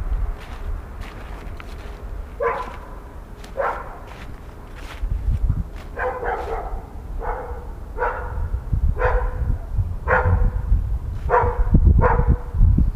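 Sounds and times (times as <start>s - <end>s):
footsteps thudding: 0.4s - 6.7s
dog barking: 2.4s - 4.2s, 5.9s - 9.5s, 10.1s - 10.6s, 11.3s - 12.4s.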